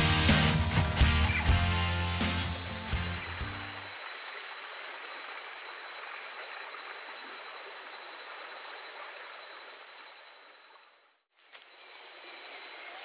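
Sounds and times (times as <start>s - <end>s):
chorus of insects: 3.2s - 13.0s.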